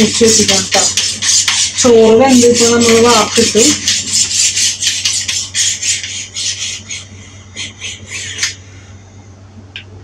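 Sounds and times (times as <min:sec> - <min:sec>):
knife rasping through sharpener: 0:00.3 - 0:07.1.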